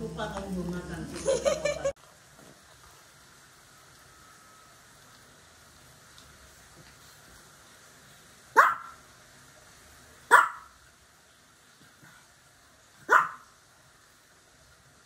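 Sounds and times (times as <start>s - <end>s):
small dog barking: 8.5s - 9.0s, 10.3s - 10.8s, 13.0s - 13.6s.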